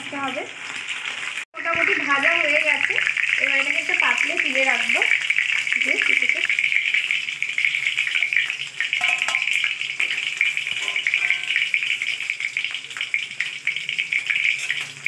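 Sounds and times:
chicken frying in hot oil: 0.0s - 15.0s
metal spatula scraping a pan: 7.7s - 12.6s, 13.2s - 15.0s.

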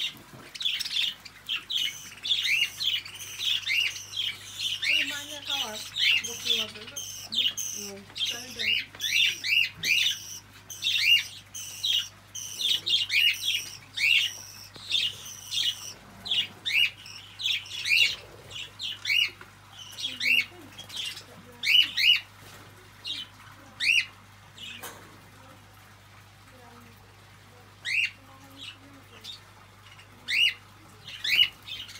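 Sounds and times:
small birds calling: 0.0s - 25.6s, 26.5s - 31.9s.

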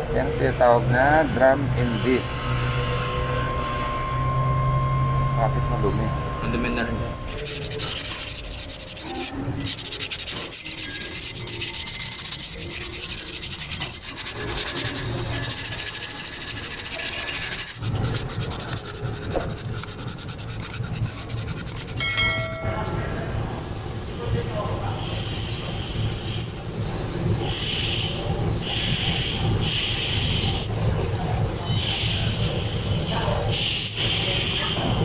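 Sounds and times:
sanding brake disc by hand: 7.3s - 22.6s, 23.6s - 34.6s.

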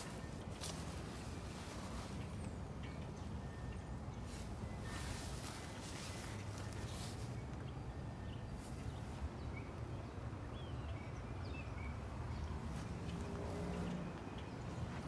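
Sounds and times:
faint bird chirps: 0.0s - 9.9s.

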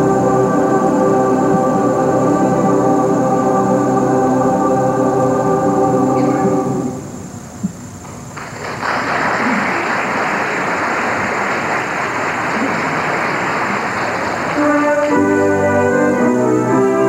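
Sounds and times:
audience applause: 8.4s - 15.1s.

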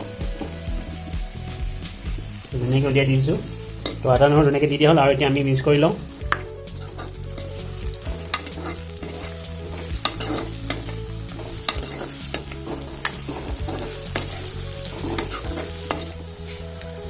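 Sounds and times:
light sizzle of frying food: 0.0s - 17.0s
metal ladle scraping a wok: 3.7s - 4.6s, 6.1s - 16.9s.

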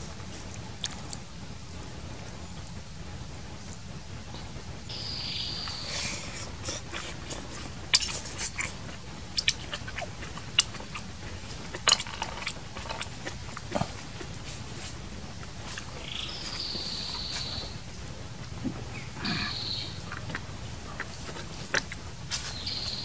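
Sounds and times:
chewing: 0.0s - 3.8s, 5.6s - 23.0s
lip smacks: 0.2s - 1.3s, 5.6s - 23.0s
slurping: 5.6s - 23.0s.

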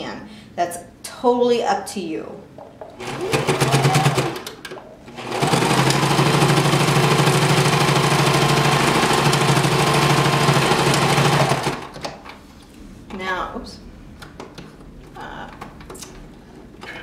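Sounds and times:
sewing machine stitching: 3.0s - 12.0s.

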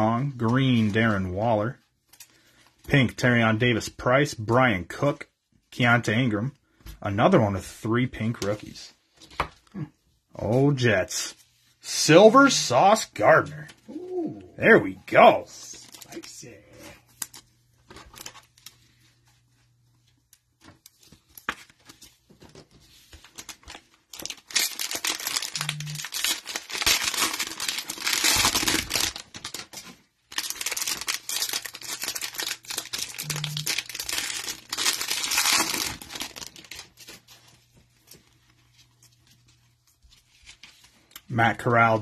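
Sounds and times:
plastic wrapper crinkling and tearing: 15.5s - 19.5s, 20.2s - 41.3s.

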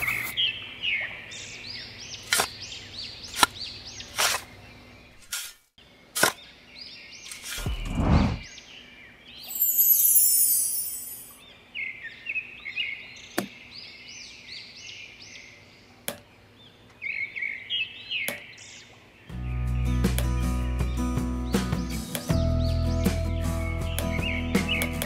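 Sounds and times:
small birds chirping: 0.0s - 25.0s
high falling swish: 7.6s - 8.5s
music: 19.3s - 25.0s.

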